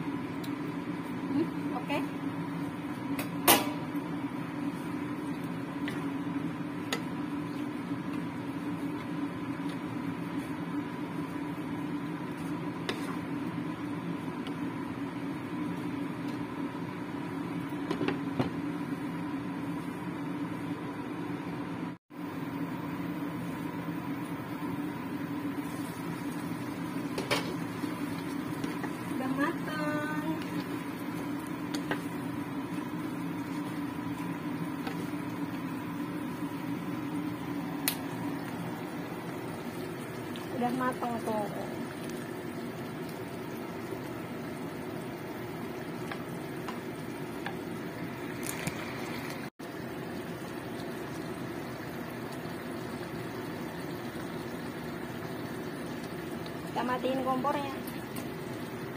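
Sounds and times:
kitchen appliance humming: 0:00.0 - 0:58.9
wooden spatula stirring in wok: 0:04.5 - 0:16.4, 0:25.5 - 0:37.5.

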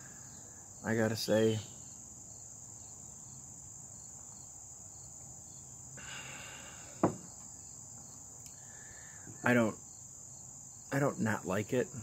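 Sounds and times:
insects chorus: 0:00.0 - 0:12.0
sharp knock: 0:07.0 - 0:07.3.

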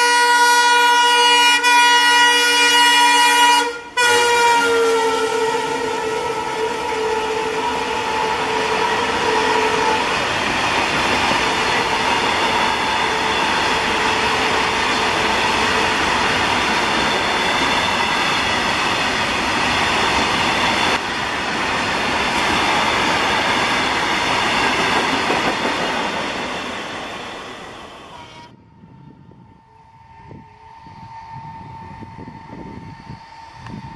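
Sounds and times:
train tone: 0:00.0 - 0:33.9
freight train wheels clattering on rail: 0:08.2 - 0:27.7.

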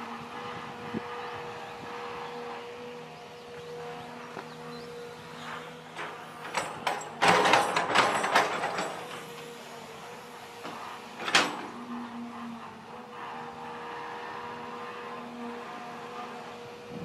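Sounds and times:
excavator engine humming: 0:00.0 - 0:17.0
clattering and scraping: 0:05.9 - 0:09.5.

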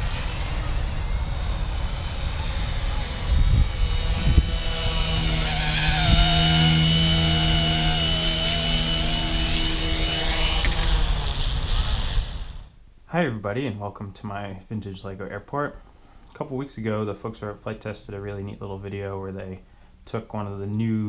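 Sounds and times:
low rumble: 0:00.0 - 0:12.7
rc helicopter whining: 0:00.0 - 0:12.8.

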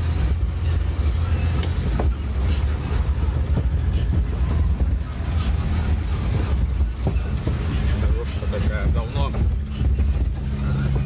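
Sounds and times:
road rumble: 0:00.0 - 0:11.0
truck diesel engine droning: 0:00.0 - 0:11.0.

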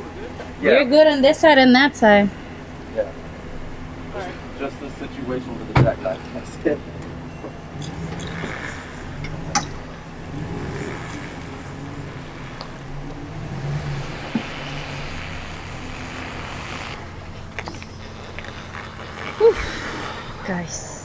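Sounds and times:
pickup truck engine running: 0:05.2 - 0:20.7.

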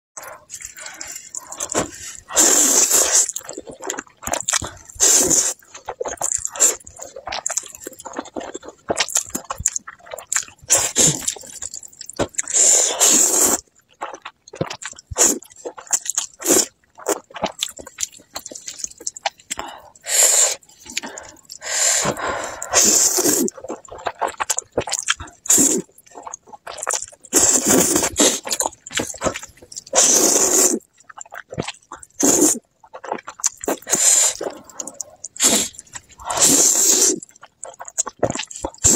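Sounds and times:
noodle slurping: 0:00.2 - 0:38.9
wet chewing and lip smacking: 0:00.2 - 0:38.9.

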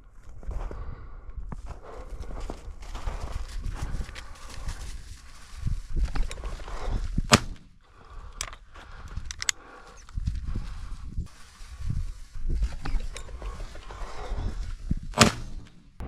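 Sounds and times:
rustling through vegetation: 0:02.0 - 0:16.0
sharp crack: 0:07.3 - 0:07.8, 0:15.1 - 0:16.0
small clicks: 0:08.3 - 0:10.4.

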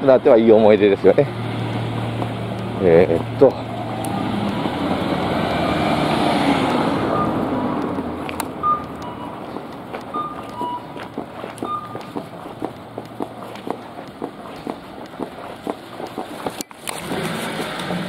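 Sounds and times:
footsteps on pavement: 0:00.0 - 0:18.0
car passing close by: 0:00.6 - 0:09.5
short high beeps: 0:07.1 - 0:07.5, 0:08.6 - 0:09.4, 0:10.1 - 0:11.0, 0:11.6 - 0:12.1.

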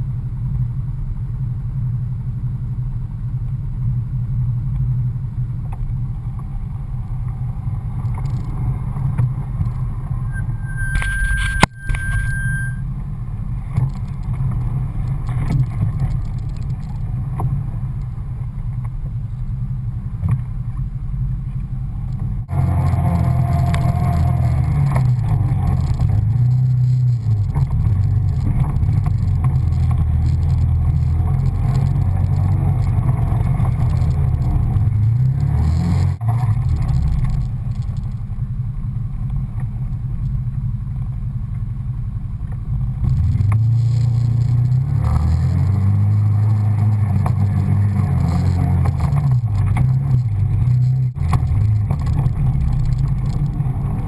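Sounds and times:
tyres over dirt and gravel: 0:22.2 - 0:38.6, 0:42.5 - 0:54.0
engine revving under load: 0:22.4 - 0:37.0, 0:43.0 - 0:53.8.

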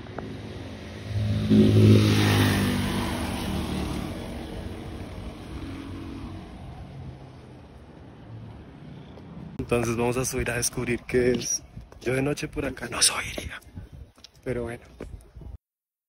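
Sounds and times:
vehicle engine passing by: 0:00.0 - 0:09.6.

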